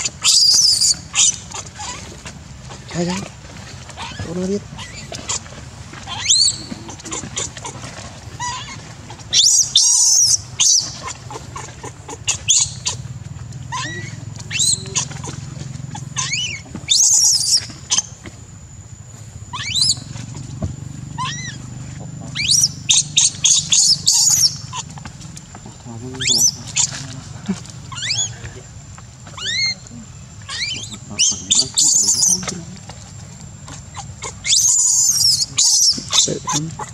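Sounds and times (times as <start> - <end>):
baby monkey screaming: 0.0 - 13.0, 13.6 - 18.2, 19.5 - 25.0, 26.1 - 28.5, 29.2 - 32.7, 33.6 - 36.9.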